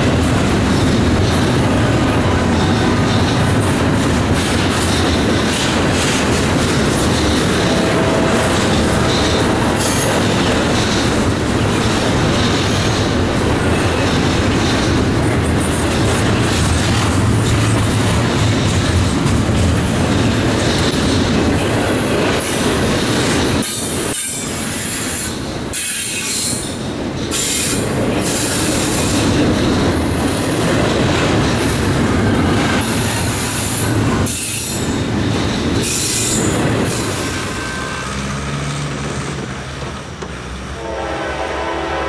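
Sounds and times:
train wheels rushing: 0.0s - 42.0s
wheels squealing against rails: 6.5s - 17.9s, 19.3s - 39.4s
locomotive horn: 7.5s - 9.8s, 37.4s - 38.3s, 40.7s - 42.0s.

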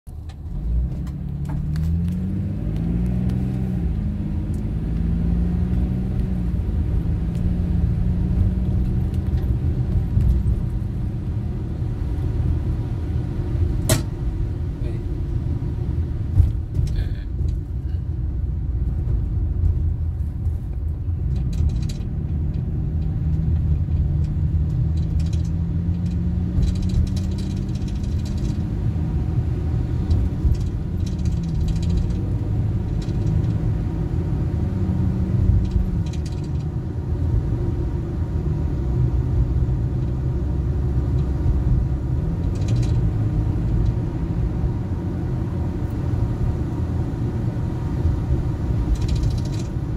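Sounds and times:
car driving rumble: 0.1s - 49.9s
humming engine note rising: 0.3s - 16.4s.

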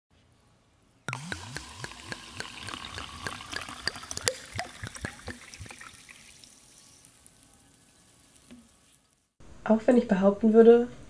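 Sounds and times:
water dripping and trickling: 1.1s - 9.3s.

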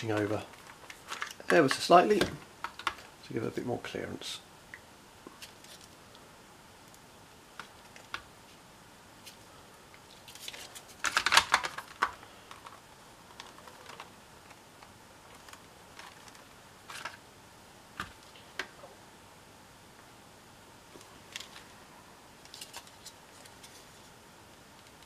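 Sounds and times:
plastic clicks and rattles: 10.5s - 17.2s.

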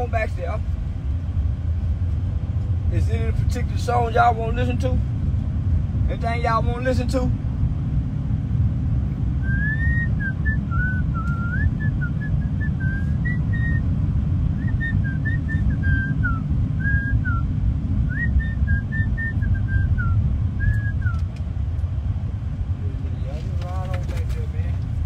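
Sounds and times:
car driving rumble: 0.0s - 25.0s
person whistling a tune: 9.4s - 13.8s, 14.6s - 17.5s, 18.1s - 21.2s.

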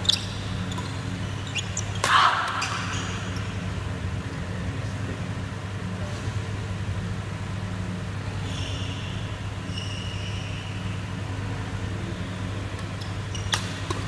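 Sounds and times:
shoe squeaks on court floor: 0.0s - 3.5s, 8.5s - 10.8s, 12.9s - 14.0s
steady low hum: 0.0s - 14.0s
racket hitting shuttlecock: 1.9s - 3.3s.

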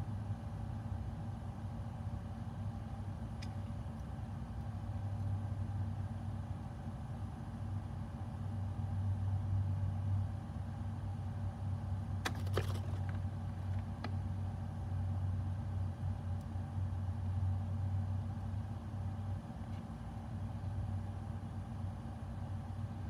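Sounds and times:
steady low hum: 0.0s - 23.0s.

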